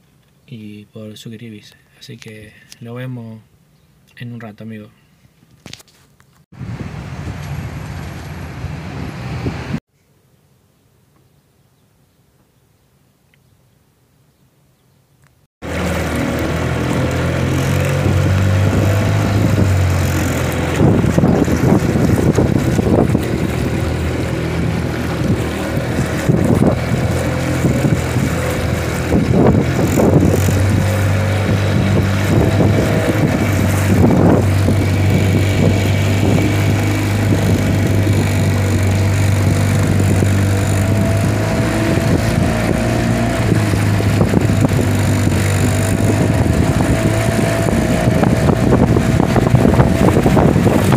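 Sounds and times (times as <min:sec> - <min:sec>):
outboard motor running: 0:15.6 - 0:50.9
water splashing against hull: 0:15.6 - 0:50.9.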